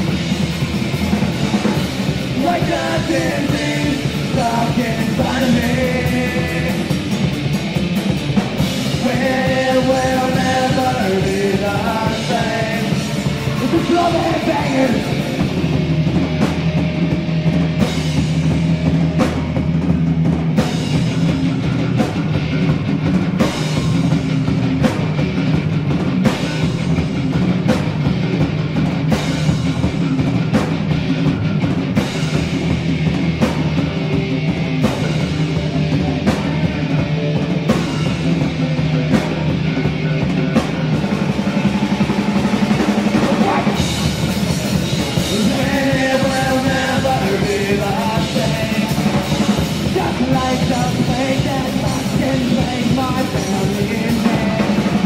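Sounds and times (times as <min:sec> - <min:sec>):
punk rock band playing: 0:00.0 - 0:55.0
person singing: 0:02.4 - 0:07.2, 0:08.9 - 0:15.7, 0:44.9 - 0:55.0.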